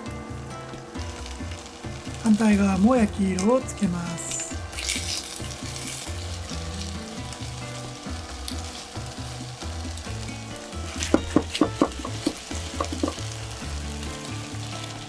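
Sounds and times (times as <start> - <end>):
chicken sizzling in frying pan: 0.0 - 15.0.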